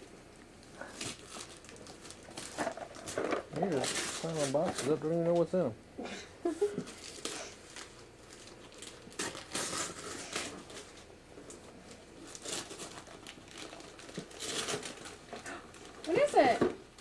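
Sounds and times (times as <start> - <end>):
wrapping paper crumpling: 0.6 - 5.4, 6.8 - 17.0.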